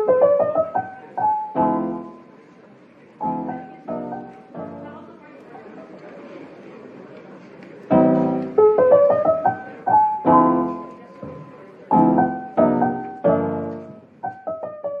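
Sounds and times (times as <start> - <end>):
piano music: 0.0 - 2.3, 3.2 - 5.2, 7.9 - 15.0.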